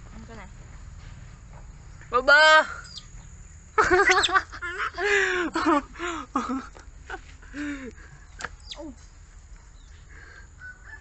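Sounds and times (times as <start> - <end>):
baby monkey high calls: 4.0 - 4.5.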